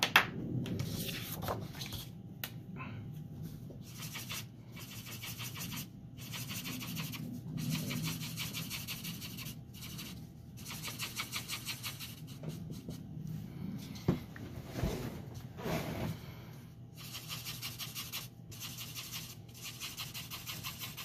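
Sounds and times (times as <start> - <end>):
marker rubbing on paper: 3.8 - 13.0, 17.0 - 21.0.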